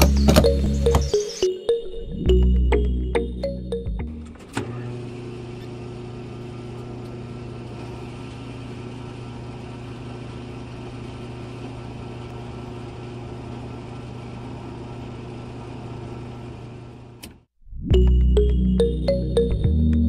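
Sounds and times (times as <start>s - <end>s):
electric pump motor humming: 4.4s - 17.2s.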